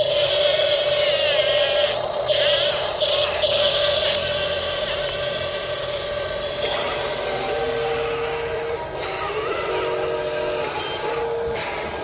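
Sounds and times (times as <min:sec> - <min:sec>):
electric motor whine: 0:00.0 - 0:12.0.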